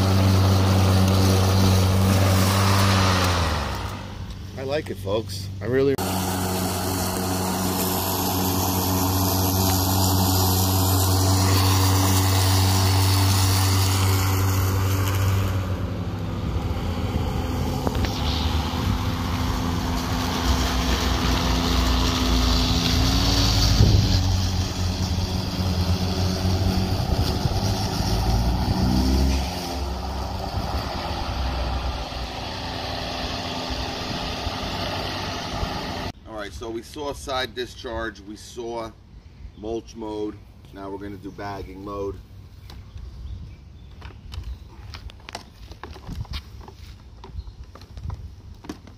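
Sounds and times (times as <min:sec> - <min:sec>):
lawn mower motor hum: 0:00.0 - 0:04.6, 0:05.9 - 0:36.2
rush of cut grass: 0:00.0 - 0:38.7.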